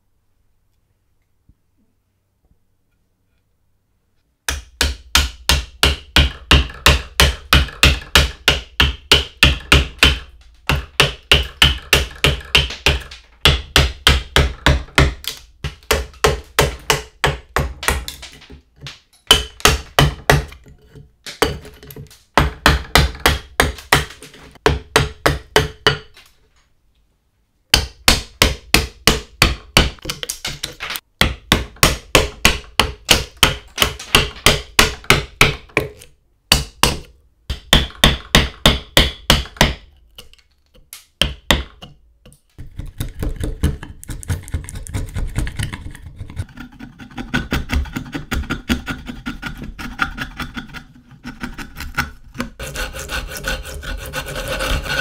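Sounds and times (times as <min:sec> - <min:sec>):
hammer striking wood chisel: 0:04.5 - 0:20.7, 0:21.3 - 0:26.2, 0:27.7 - 0:45.0, 0:51.4 - 0:55.0.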